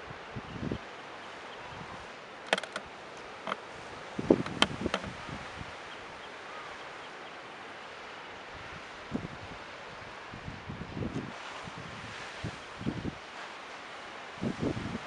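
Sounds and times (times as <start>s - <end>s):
wind hiss on microphone: 0.0s - 15.0s
sharp clicks and knocks: 2.5s - 3.6s, 4.4s - 5.1s.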